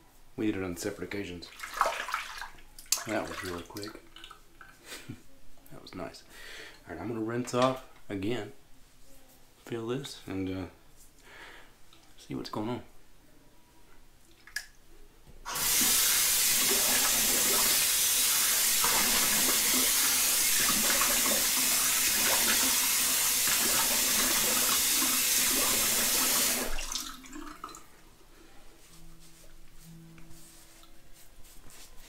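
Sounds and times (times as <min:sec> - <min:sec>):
water splashing: 0:01.5 - 0:04.4, 0:18.4 - 0:27.9.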